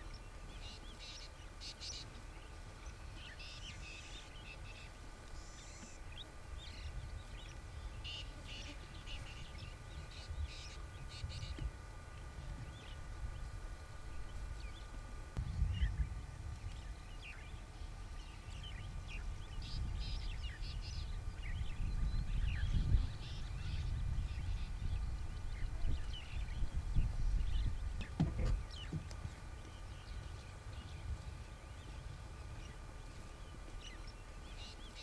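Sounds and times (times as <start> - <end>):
low rumbling noise: 8.9 - 34.9.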